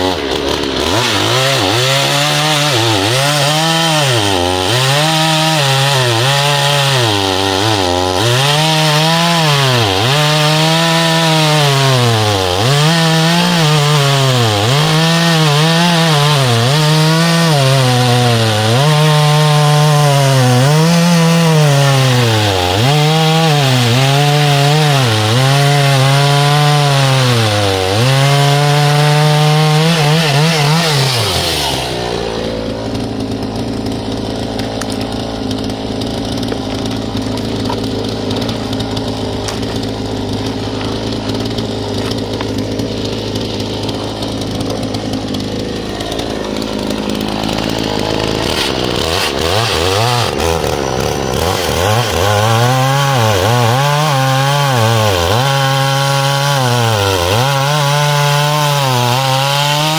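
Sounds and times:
chainsaw cutting log: 0.0 - 59.9.

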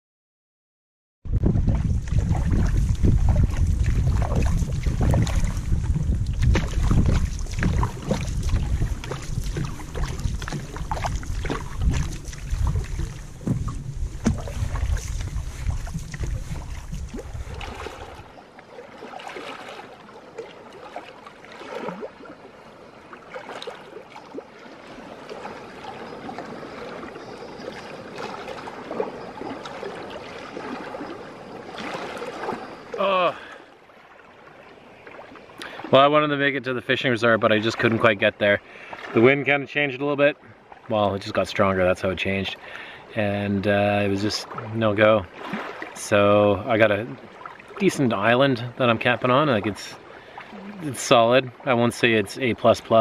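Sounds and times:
wind rumbling on microphone: 1.2 - 18.4
waves splashing against canoe hull: 1.3 - 39.6, 40.4 - 53.0.

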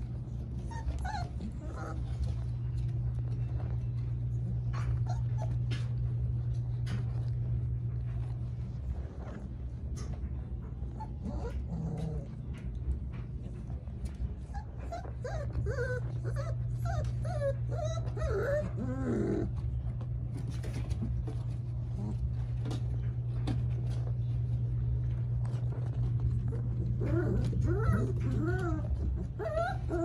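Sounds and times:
paws scuffing on blanket: 0.0 - 30.0
steady low hum: 0.0 - 30.0
puppies whining and yipping: 0.2 - 6.3, 10.9 - 12.4, 14.3 - 19.7, 25.8 - 30.0.

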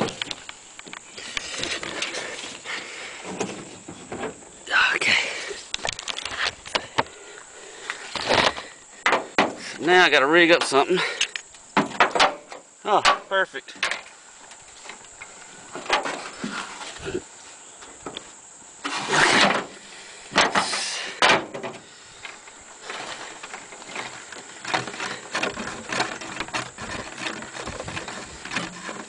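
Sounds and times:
string rustling and scraping: 0.0 - 7.2, 13.4 - 29.0.

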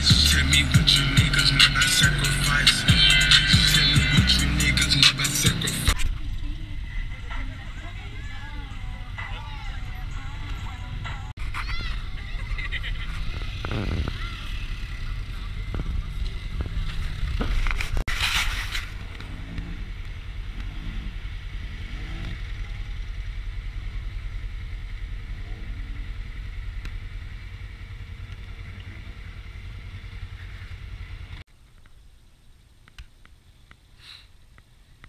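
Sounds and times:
engine revving through mud: 0.0 - 6.0, 13.0 - 18.1, 18.8 - 23.0, 25.1 - 31.4
engine running at low revs: 0.0 - 18.1, 18.8 - 31.5
wind on microphone: 13.1 - 19.9.

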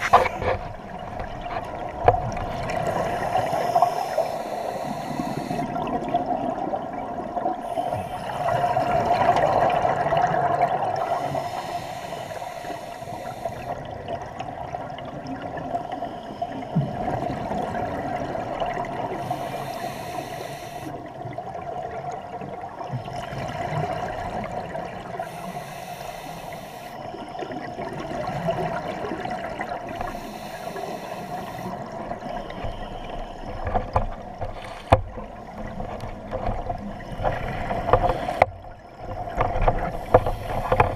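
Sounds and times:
underwater hiss: 2.7 - 5.9, 7.6 - 9.5, 10.9 - 13.9, 19.0 - 21.0, 25.0 - 27.3, 29.6 - 33.6, 34.6 - 35.2, 37.1 - 38.4, 39.9 - 40.9.

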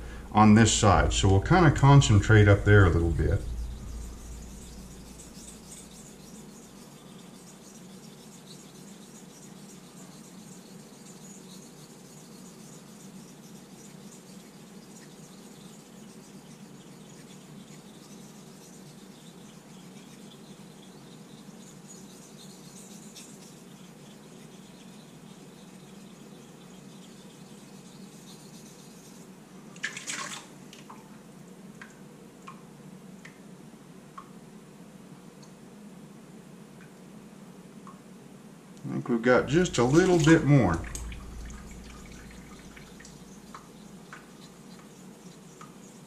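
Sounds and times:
razor strokes on wet stone: 0.8 - 29.4, 39.4 - 46.0.

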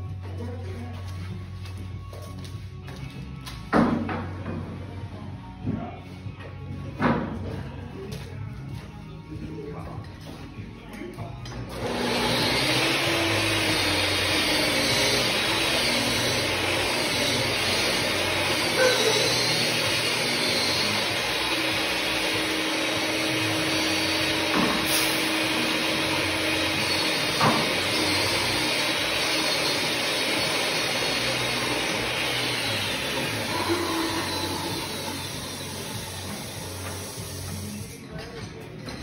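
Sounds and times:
steady rushing blower noise: 11.7 - 37.9.

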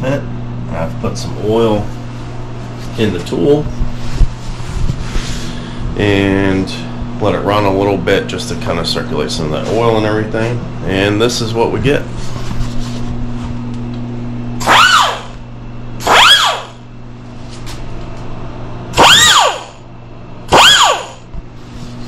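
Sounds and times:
steady low hum: 0.0 - 22.0
air tool whine: 14.6 - 15.4, 16.0 - 16.8, 18.9 - 19.8, 20.5 - 21.3.

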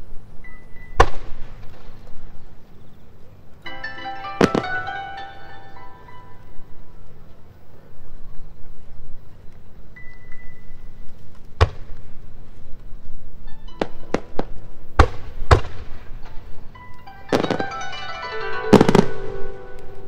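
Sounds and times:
music with ringing notes: 0.4 - 1.1, 3.6 - 7.6, 13.4 - 15.0, 16.1 - 20.0
fireworks bursting with crackling: 3.8 - 5.2, 11.4 - 12.8, 13.8 - 16.6, 17.3 - 20.0.

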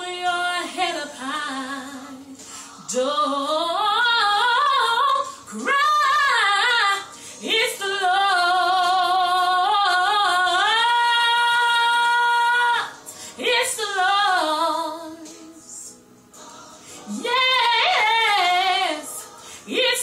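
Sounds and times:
woman singing unaccompanied gospel: 0.0 - 20.0
singer's breaths: 2.4 - 2.8, 16.7 - 17.1, 19.2 - 19.7.

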